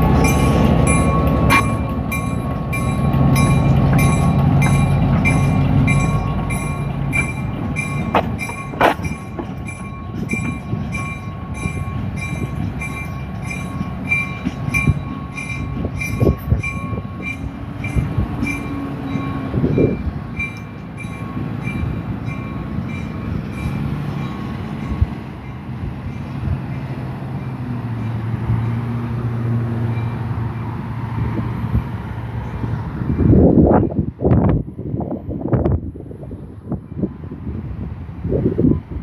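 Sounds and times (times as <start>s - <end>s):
crossing signal bell ringing: 0.0s - 28.9s, 29.8s - 30.8s
train rumbling: 0.0s - 39.0s.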